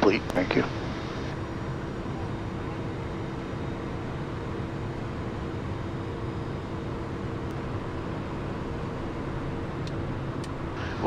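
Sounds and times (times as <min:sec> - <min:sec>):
faint steady hums: 0:00.0 - 0:11.0
jet engines in cockpit: 0:00.0 - 0:11.0
air rushing over airframe: 0:10.7 - 0:11.0.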